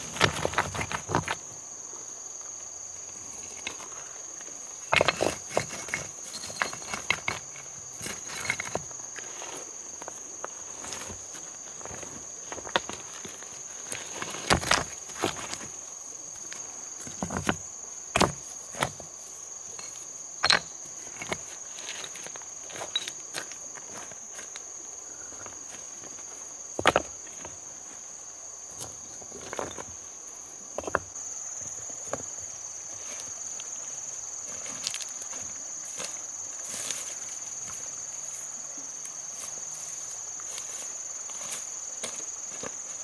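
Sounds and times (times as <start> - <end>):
knocks and rustles of person moving: 0.0 - 1.6, 3.4 - 24.7
insects chirping: 0.0 - 43.0.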